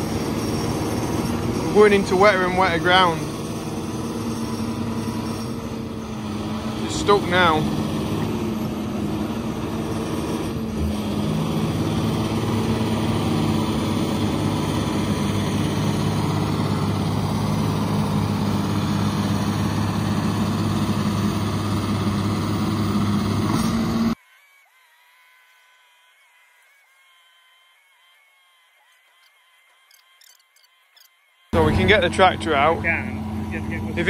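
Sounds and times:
tractor engine under load: 0:00.0 - 0:24.2, 0:31.6 - 0:34.0.

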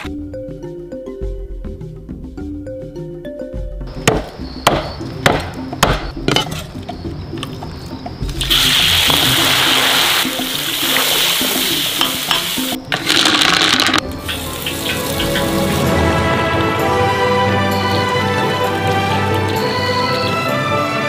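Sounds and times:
sharp knocks: 0:04.0 - 0:06.4
food sizzling in hot oil: 0:08.4 - 0:16.3.

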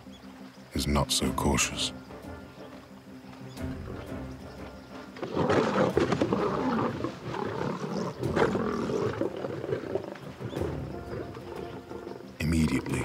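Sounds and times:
lions snarling and growling: 0:05.1 - 0:12.2.

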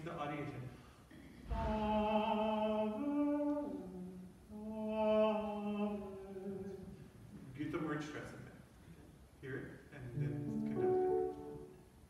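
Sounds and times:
person singing unaccompanied: 0:01.6 - 0:07.0.

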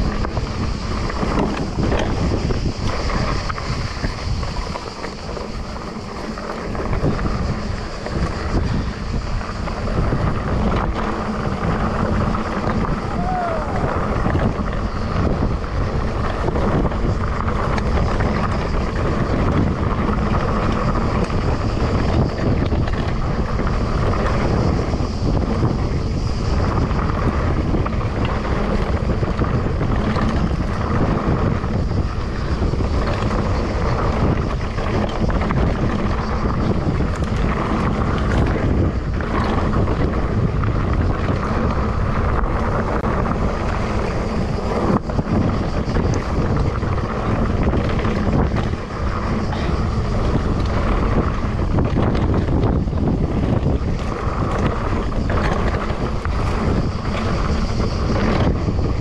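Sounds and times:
bike rattling over bumps: 0:00.0 - 0:59.0
tyres on loose dirt: 0:00.0 - 0:59.0
wind rush on microphone: 0:00.0 - 0:59.0.

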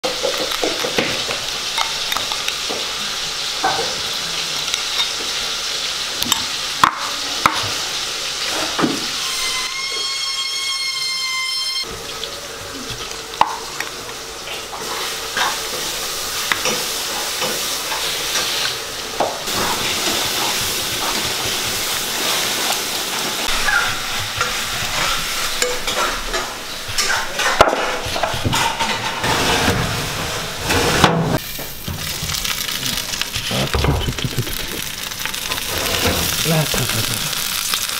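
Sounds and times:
hands working marinade over chicken: 0:19.5 - 0:25.2.

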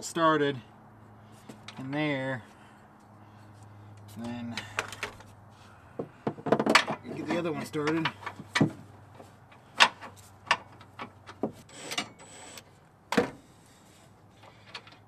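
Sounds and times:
metal clicks and knocks: 0:06.0 - 0:08.8.

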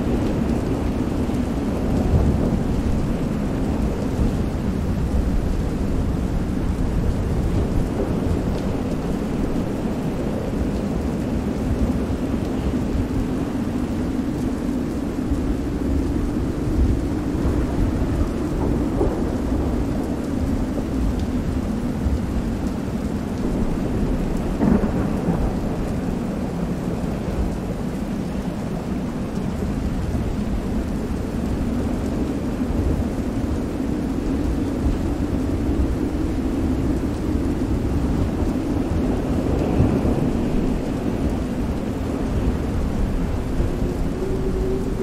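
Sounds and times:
steady rain: 0:00.0 - 0:45.0
thunder rumbling: 0:00.0 - 0:45.0.

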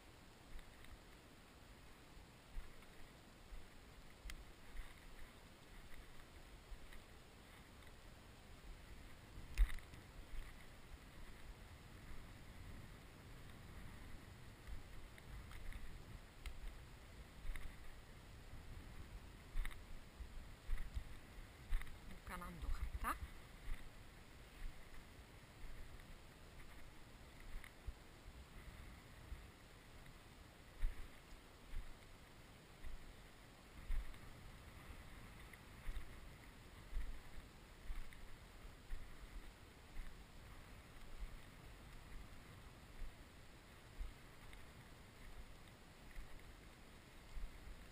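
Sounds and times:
dry stalks crackling: 0:02.4 - 0:47.9
wind rumble on microphone: 0:02.4 - 0:47.9
footsteps through stubble: 0:02.5 - 0:08.1, 0:14.5 - 0:27.8.

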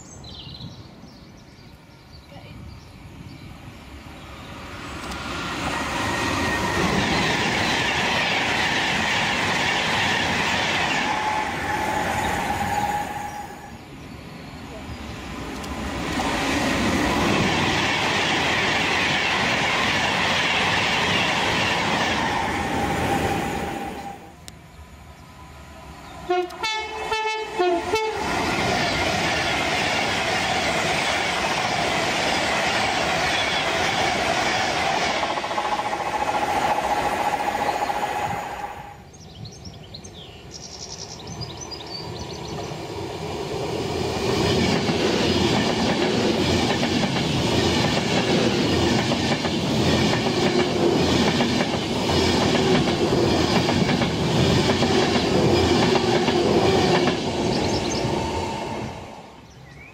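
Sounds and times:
train wheels rushing on rail: 0:03.0 - 0:39.2, 0:40.4 - 0:59.9
train horn: 0:26.3 - 0:28.3.

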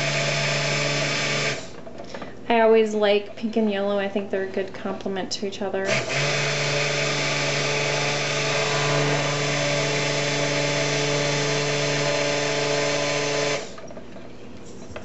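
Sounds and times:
stick blender motor running: 0:00.0 - 0:01.9, 0:05.8 - 0:14.0.

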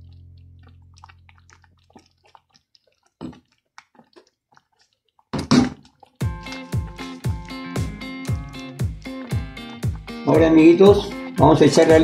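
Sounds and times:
rice boiling and bubbling: 0:00.0 - 0:10.2
wooden spoon stirring: 0:00.1 - 0:08.3.

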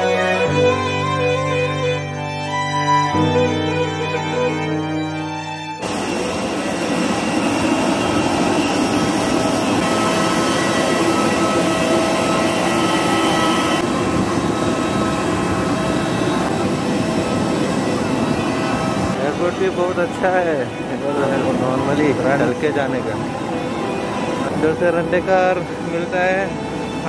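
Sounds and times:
jet engine rushing: 0:05.8 - 0:27.0.

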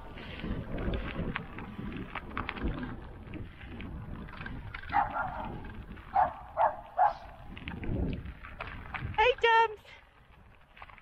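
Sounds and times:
bike tyres rolling on gravel: 0:00.0 - 0:11.0
dog barking: 0:04.9 - 0:05.5, 0:06.1 - 0:07.3.

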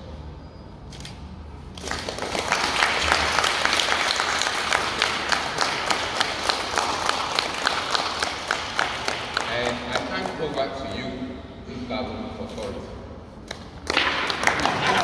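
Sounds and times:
audience applause: 0:01.8 - 0:10.4, 0:13.9 - 0:15.0.

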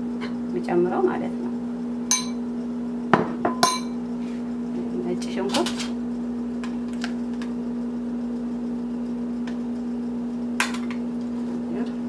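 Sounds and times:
metal spoon clinking: 0:02.1 - 0:02.4, 0:03.6 - 0:04.0
low hum: 0:02.1 - 0:02.5.

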